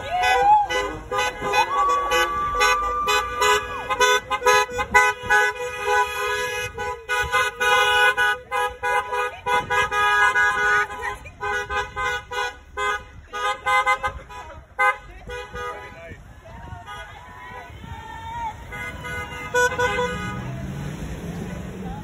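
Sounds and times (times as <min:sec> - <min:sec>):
person cheering: 0:00.0 - 0:03.9
car horns honking: 0:00.0 - 0:20.9.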